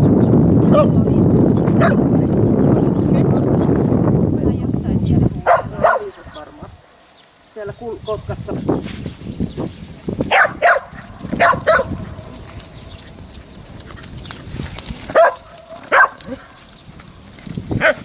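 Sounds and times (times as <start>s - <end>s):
dog barking: 1.8s - 2.0s, 5.4s - 6.2s, 10.3s - 12.1s, 15.1s - 16.6s, 17.8s - 18.0s.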